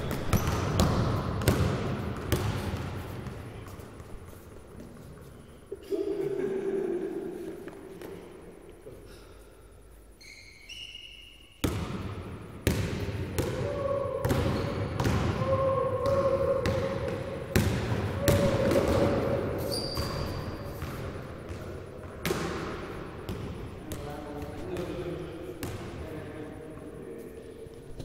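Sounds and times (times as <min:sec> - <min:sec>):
shoe squeaks: 0:00.0 - 0:00.7, 0:10.1 - 0:11.6, 0:19.6 - 0:20.8
basketball bouncing on gym floor: 0:00.0 - 0:03.8, 0:11.6 - 0:25.0, 0:25.6 - 0:25.9.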